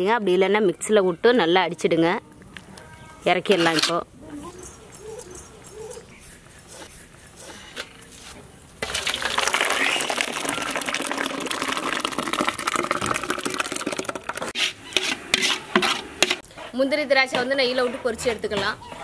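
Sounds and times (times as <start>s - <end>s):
thick lentils pouring into metal vessel: 8.8s - 14.5s.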